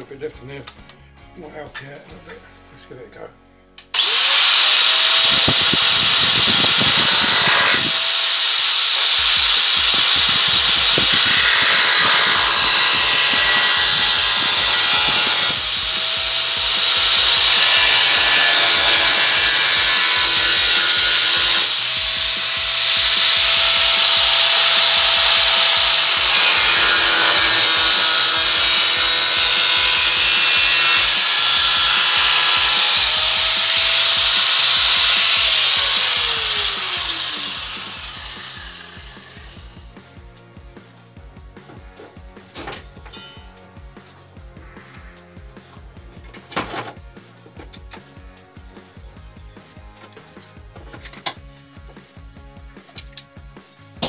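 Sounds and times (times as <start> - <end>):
angle grinder grinding steel: 3.9 - 40.0
motor whine: 4.0 - 39.8.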